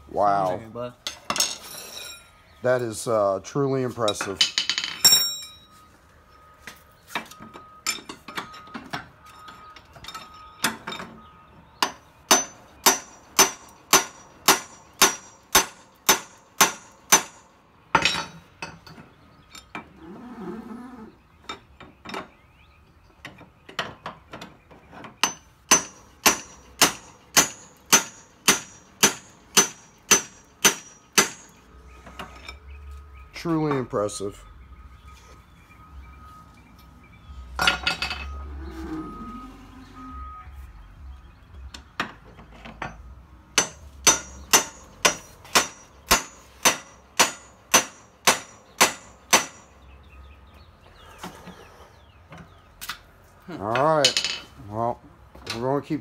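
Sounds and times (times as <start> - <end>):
hammer striking steel bar: 11.8 - 17.4, 25.2 - 31.6, 43.6 - 49.7.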